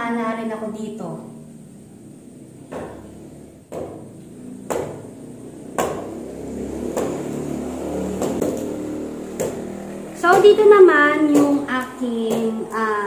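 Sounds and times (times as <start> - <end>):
sharp knocks ringing in a room: 2.6 - 12.8.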